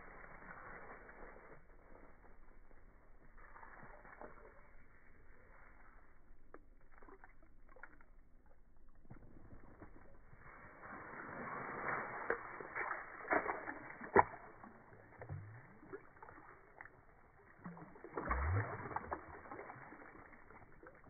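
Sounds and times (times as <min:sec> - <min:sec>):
low gurgling splash: 0:06.8 - 0:21.0
deep water splashing and sloshing: 0:12.2 - 0:21.0.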